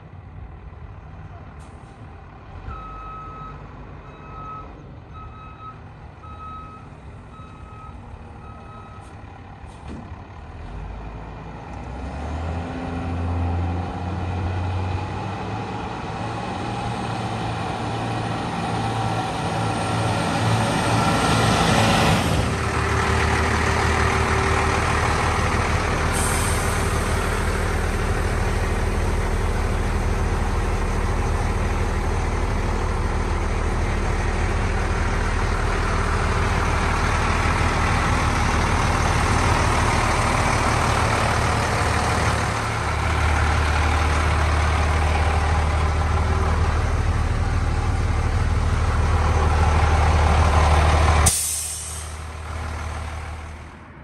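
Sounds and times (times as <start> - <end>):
diesel truck engine: 0.0 - 54.0
truck backup alarm beeping: 2.7 - 9.1
air brake hiss: 26.1 - 27.2, 51.2 - 52.2.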